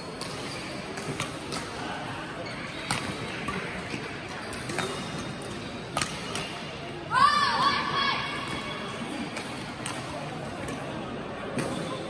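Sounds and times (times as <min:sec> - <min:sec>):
rackets hitting shuttlecock: 0:02.8 - 0:06.6, 0:11.5 - 0:12.0.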